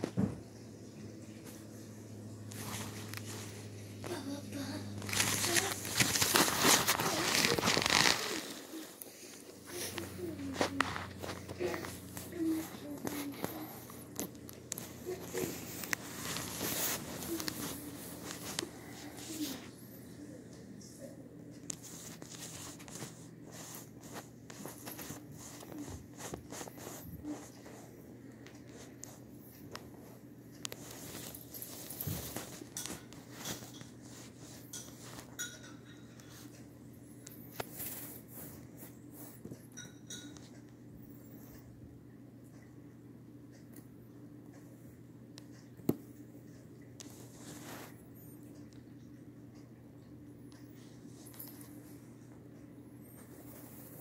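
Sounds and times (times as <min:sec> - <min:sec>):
kitten paws clicking and pattering: 0:00.0 - 0:41.8, 0:42.4 - 0:54.0
low steady hum: 0:00.0 - 0:54.0
rustling of nylon tunnel: 0:02.6 - 0:12.6.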